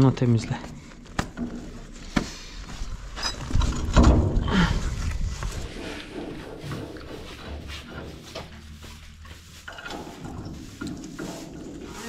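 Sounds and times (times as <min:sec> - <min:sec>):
car wheel knocking and scraping: 0:05.3 - 0:08.6.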